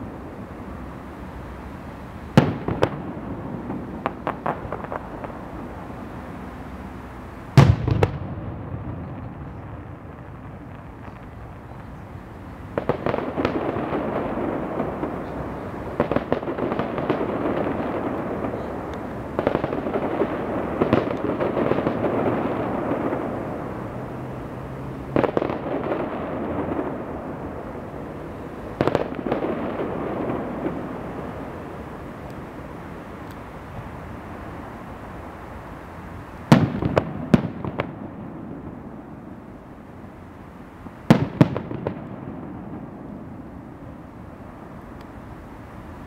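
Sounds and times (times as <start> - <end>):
fireworks crackling rumble: 0.0 - 46.0
distant firework bangs: 2.3 - 32.7, 36.4 - 39.4, 40.8 - 43.9.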